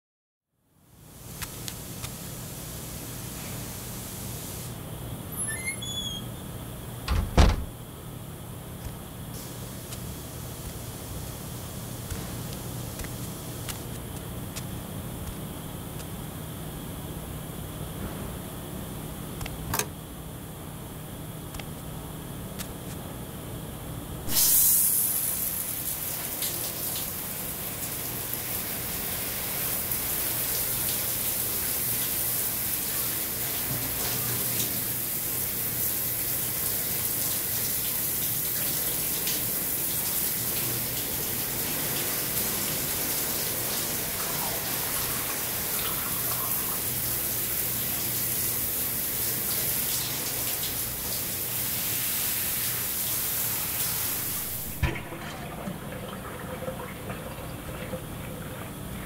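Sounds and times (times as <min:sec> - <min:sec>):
shower water spraying: 0:24.3 - 0:55.6.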